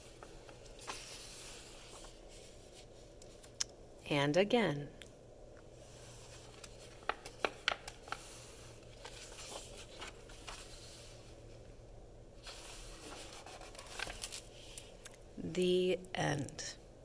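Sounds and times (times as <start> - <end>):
pages rustling: 0.0 - 3.5, 5.9 - 11.4, 12.4 - 15.0
book pages flicking: 6.5 - 8.3.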